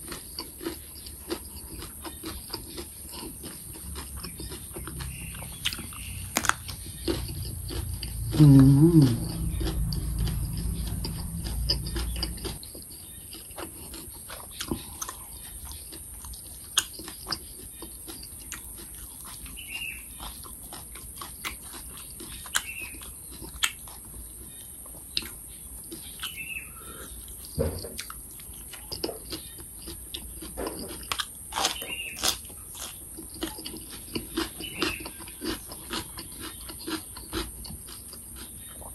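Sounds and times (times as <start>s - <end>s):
chewing with crunches: 0.0s - 38.9s
mouth smacks and clicks: 5.3s - 12.6s
loud wavering hum: 6.2s - 12.5s.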